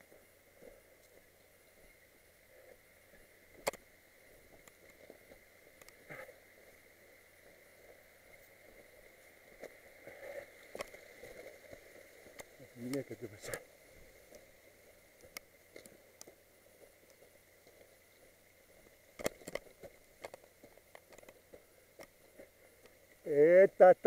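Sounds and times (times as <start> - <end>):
footsteps on stony slope: 7.4 - 23.2.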